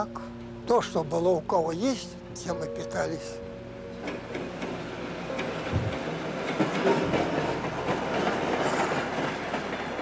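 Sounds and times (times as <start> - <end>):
train rumbling past: 0.0 - 10.0
wheels clattering over rails: 3.9 - 10.0.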